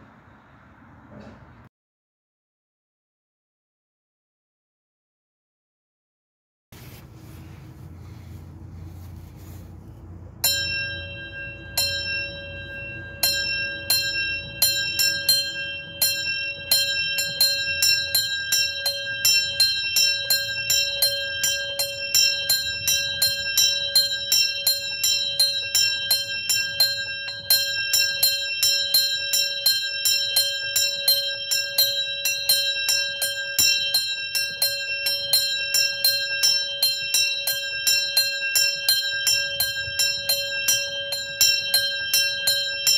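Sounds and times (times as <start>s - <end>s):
small bell ringing: 10.3s - 42.9s.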